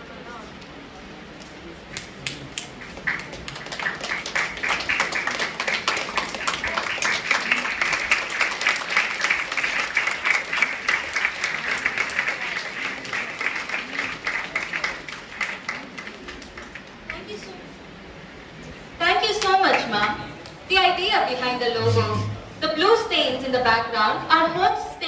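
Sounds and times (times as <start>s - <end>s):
audience applauding: 1.9s - 17.6s, 19.3s - 20.6s.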